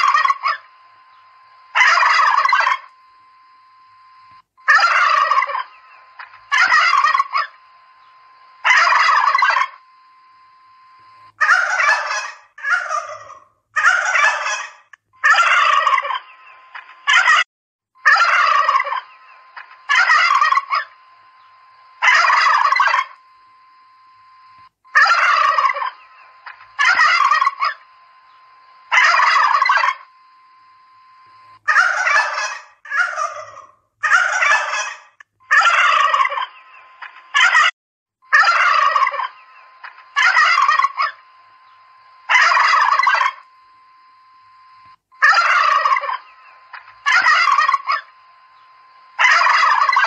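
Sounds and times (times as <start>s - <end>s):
turkeys gobbling: 0.0s - 0.7s, 1.7s - 2.9s, 4.6s - 8.0s, 8.6s - 9.8s, 11.4s - 17.4s, 18.0s - 21.0s, 22.0s - 23.2s, 24.9s - 27.9s, 28.9s - 30.1s, 31.7s - 37.7s, 38.3s - 41.2s, 42.3s - 43.4s, 45.2s - 48.1s, 49.2s - 50.0s
faint steady tone: 0.0s - 13.3s, 18.0s - 32.8s, 38.2s - 50.0s.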